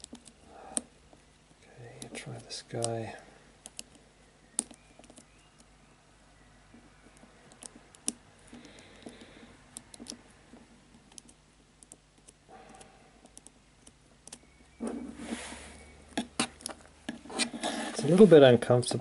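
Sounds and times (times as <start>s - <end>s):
rubbing noise: 14.8s - 18.5s.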